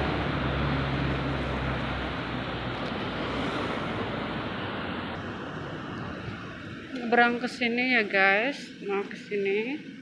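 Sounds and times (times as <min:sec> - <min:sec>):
passing vehicle engine hum: 0:00.0 - 0:07.6
city street noise: 0:00.0 - 0:10.0.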